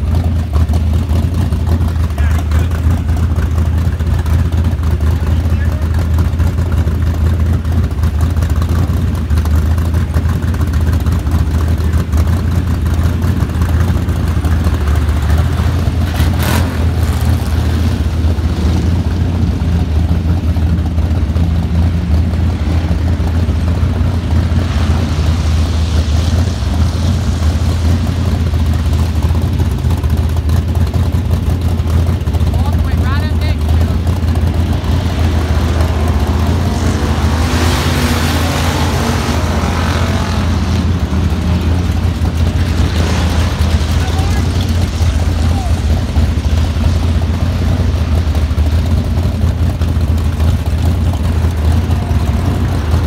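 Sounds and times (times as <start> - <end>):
race car engines droning: 0.0 - 53.0
cars passing with rushing hiss: 8.4 - 53.0.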